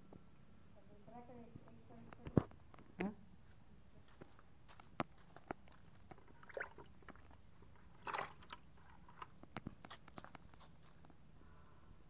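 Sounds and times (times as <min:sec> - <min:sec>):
splashy rustle of water: 0:08.0 - 0:08.7.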